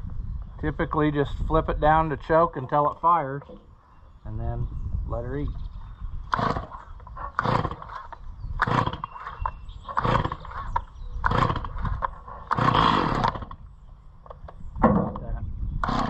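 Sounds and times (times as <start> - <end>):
chainsaw starter cord pulls: 6.3 - 13.6.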